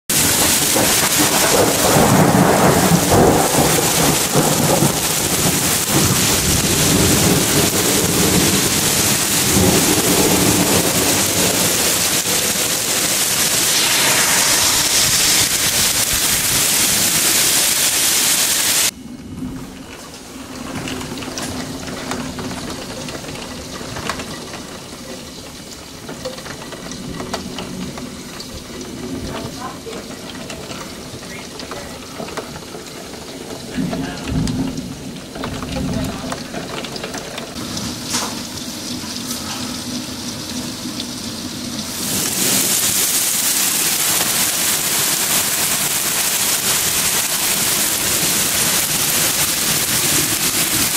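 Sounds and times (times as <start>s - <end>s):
thunder rumbling: 0.1s - 18.1s, 42.1s - 50.9s
heavy rain pouring: 0.1s - 50.9s.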